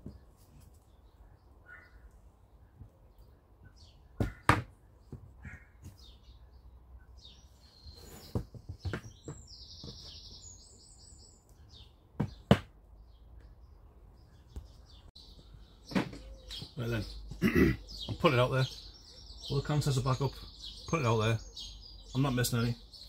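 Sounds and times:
small bird chirping: 0.0s - 23.0s
bird trill: 1.6s - 2.1s, 14.3s - 23.0s
sharp knocks: 4.2s - 6.0s, 12.2s - 12.8s.

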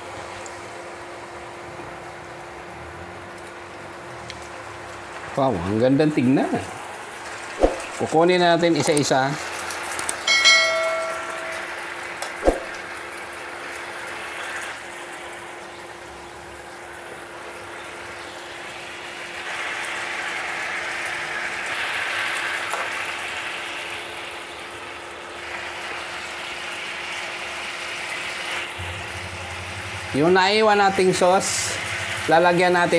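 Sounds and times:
clink: 10.3s - 11.8s
sauce sizzling in a pan: 11.3s - 32.9s
sharp knock: 12.4s - 12.7s
steady low hum: 28.8s - 32.3s.

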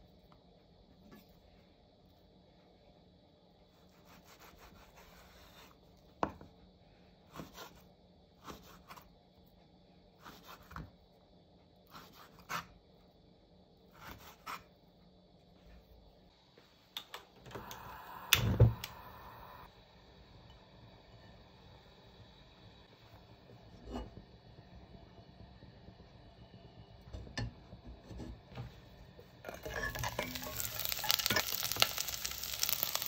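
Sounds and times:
knife scraping board: 14.0s - 14.7s.

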